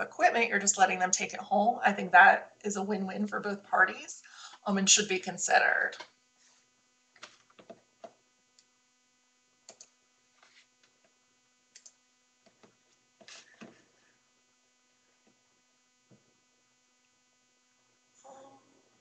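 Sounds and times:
faint steady hum: 0:00.0 - 0:19.0
faint clicks: 0:11.7 - 0:12.0.

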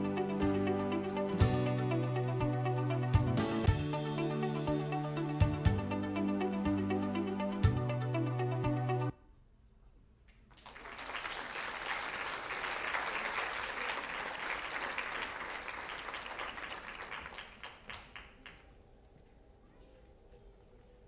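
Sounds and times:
audience applauding: 0:10.5 - 0:18.8.

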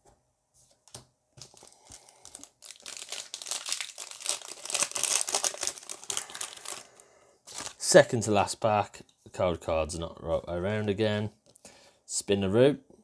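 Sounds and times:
foil wrapper crinkling and tearing: 0:01.4 - 0:07.8.

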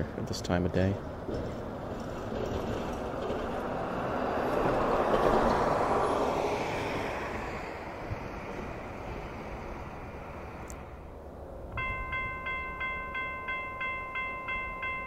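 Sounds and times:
vehicle passing by: 0:01.4 - 0:11.7.

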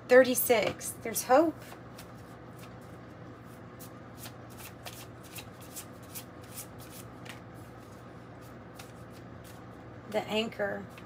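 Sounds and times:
cards shuffled by hand: 0:01.7 - 0:09.8.

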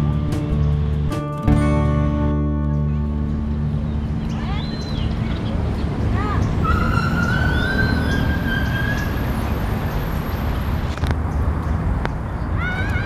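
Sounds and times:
siren wailing: 0:06.6 - 0:09.4.

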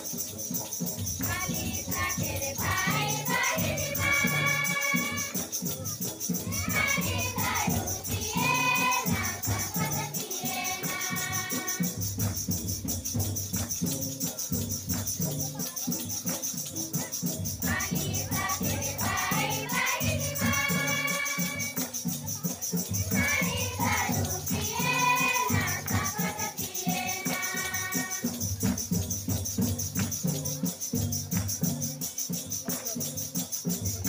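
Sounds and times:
drum beat: 0:00.0 - 0:34.0
shaker rattle: 0:00.0 - 0:34.0
group of young voices singing: 0:01.2 - 0:05.5, 0:06.4 - 0:12.3, 0:17.6 - 0:21.9, 0:23.0 - 0:28.6.

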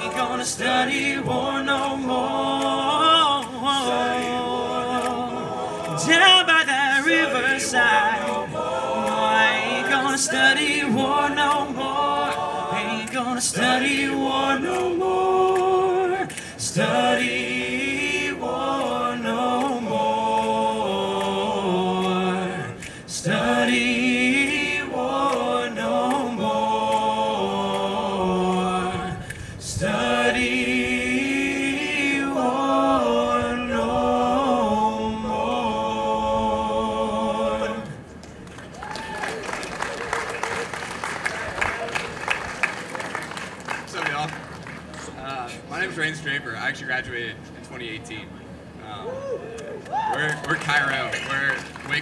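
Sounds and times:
male a cappella group singing: 0:00.0 - 0:38.2.

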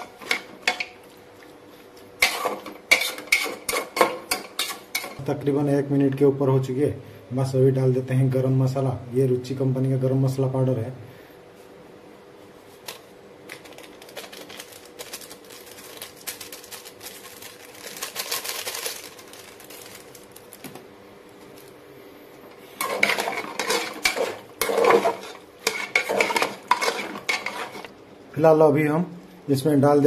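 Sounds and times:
spatula scraping a pot: 0:02.2 - 0:05.2, 0:22.8 - 0:27.9
sachet rustling: 0:12.7 - 0:20.7.

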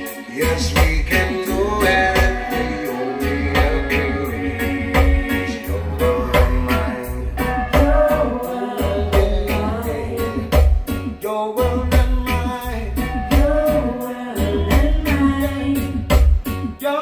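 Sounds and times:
song with singing over sound system: 0:00.0 - 0:17.0
deep bass pulses: 0:00.6 - 0:16.8.

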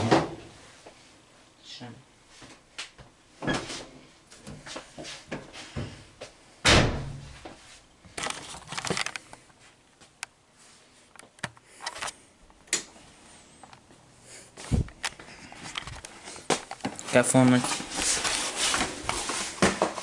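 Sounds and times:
heavy thud: 0:06.6 - 0:07.4.

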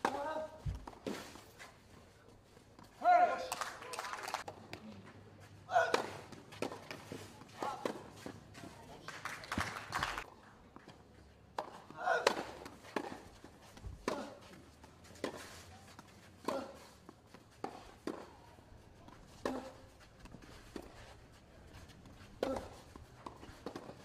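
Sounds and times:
tennis balls struck by rackets: 0:00.0 - 0:01.5, 0:05.7 - 0:08.7, 0:11.5 - 0:24.0.

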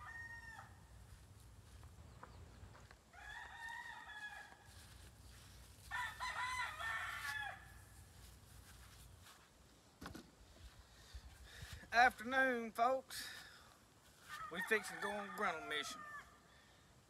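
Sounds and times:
rooster crowing: 0:00.0 - 0:00.9, 0:03.1 - 0:04.8, 0:05.8 - 0:07.8, 0:14.3 - 0:16.5.

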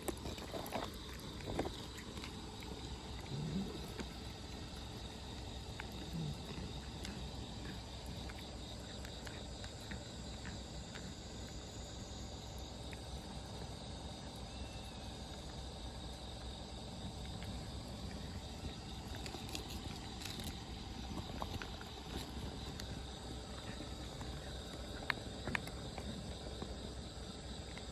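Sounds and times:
cats crunching dry kibble: 0:00.0 - 0:27.9
outdoor background hum: 0:00.0 - 0:27.9.

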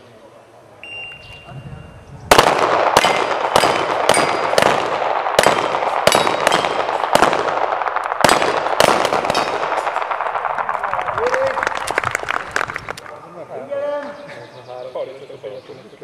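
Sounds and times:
handgun shots with echo: 0:02.3 - 0:10.3
bullets clanging on steel targets: 0:03.0 - 0:04.6, 0:05.4 - 0:07.0.

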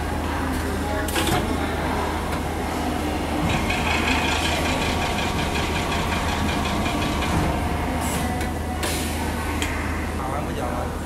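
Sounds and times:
low machine hum: 0:00.0 - 0:11.0
ticking mechanical whir: 0:02.3 - 0:08.6.

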